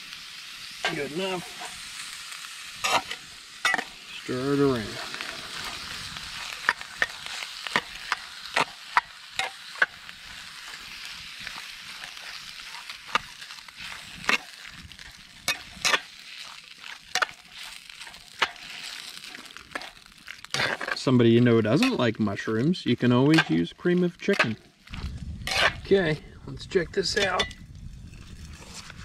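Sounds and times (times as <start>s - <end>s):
food sizzling in a pot: 0.0s - 29.0s
spatula scraping a pot: 16.8s - 21.0s, 25.4s - 25.9s.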